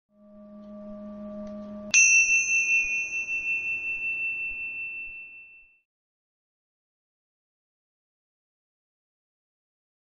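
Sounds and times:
low steady hum: 0.2 - 5.8
bright bell-like ding: 0.2 - 5.9.

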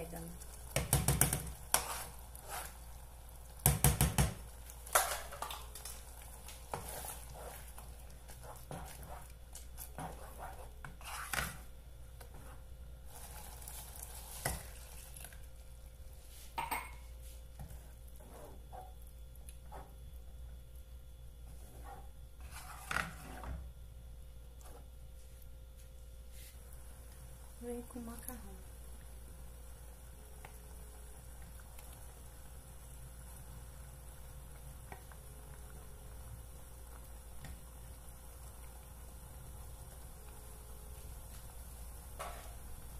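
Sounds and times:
faint sizzle of sauce: 0.0 - 42.9
wooden spoon stirring thick sauce: 0.3 - 3.0, 3.7 - 15.4.

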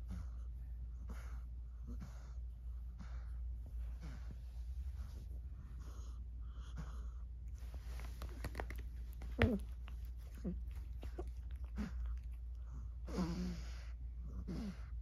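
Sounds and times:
blanket rustling: 7.5 - 11.4
cat vocalizing: 9.3 - 12.6.

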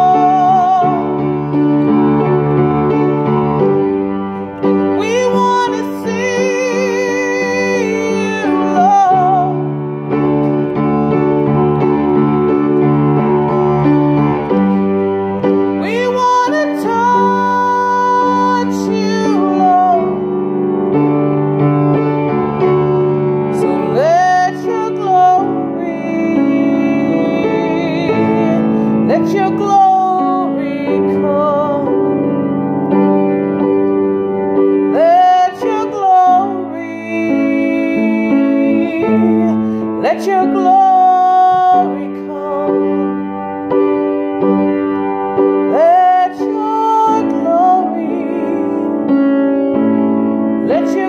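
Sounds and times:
woman singing: 0.0 - 1.2, 4.9 - 9.8, 15.8 - 20.2, 23.5 - 32.1, 34.9 - 43.2, 45.7 - 49.2, 50.6 - 51.0
piano playing slow chords: 0.0 - 51.0.

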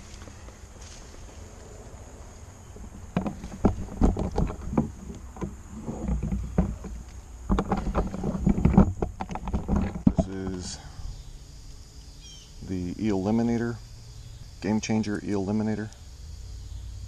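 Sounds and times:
camera handling knocks and rustles: 2.8 - 10.3.

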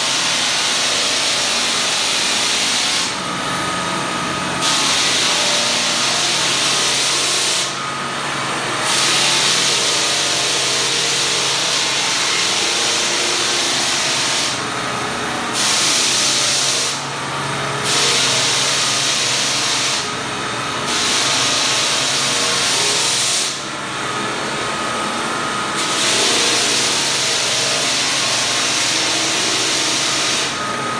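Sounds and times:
floor sander motor running: 0.0 - 30.9
sanding drum hissing on wood: 8.9 - 14.6, 25.8 - 30.6.

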